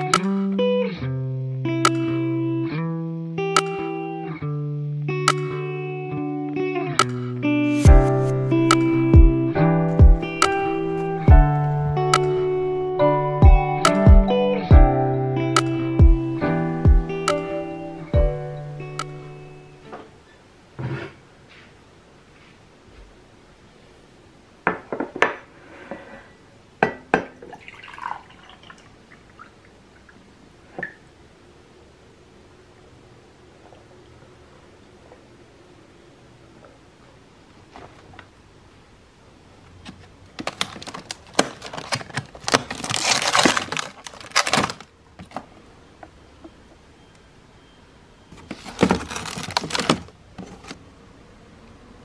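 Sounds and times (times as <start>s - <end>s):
water pouring into glass: 27.5s - 29.5s
plastic wrapping rustling: 39.9s - 45.5s, 48.3s - 50.8s
plastic tubs knocking together: 48.4s - 50.7s.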